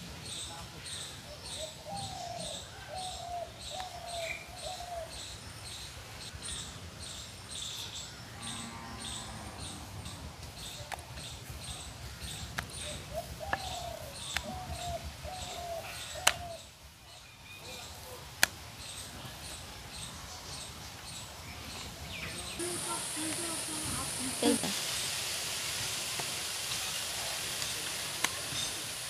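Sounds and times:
dove cooing: 0:01.6 - 0:05.2, 0:12.8 - 0:16.7, 0:22.6 - 0:24.8.

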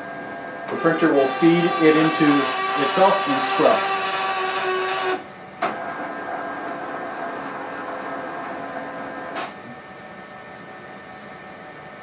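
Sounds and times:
card printer whining: 0:00.4 - 0:05.2.

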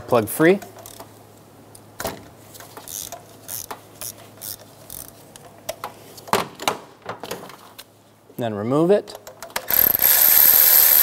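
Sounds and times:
hand ratchet clicking: 0:02.9 - 0:05.1, 0:09.6 - 0:11.0.

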